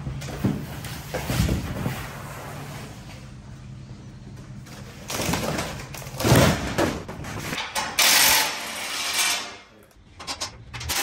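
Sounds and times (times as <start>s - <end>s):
metal knocks and clatter: 10.1s - 11.0s.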